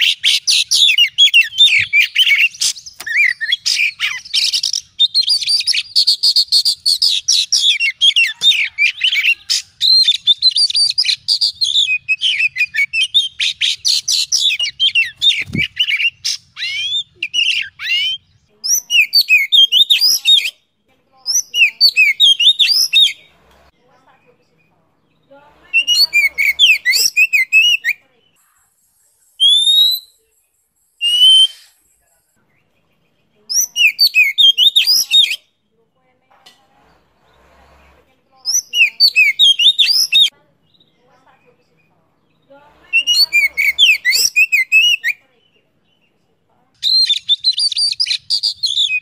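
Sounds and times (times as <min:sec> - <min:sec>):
bird singing whistled phrases: 0:00.0 - 0:20.6, 0:21.3 - 0:23.3, 0:25.7 - 0:28.0, 0:29.3 - 0:30.2, 0:31.0 - 0:31.9, 0:33.5 - 0:35.5, 0:38.5 - 0:40.3, 0:42.9 - 0:45.2, 0:46.8 - 0:49.0.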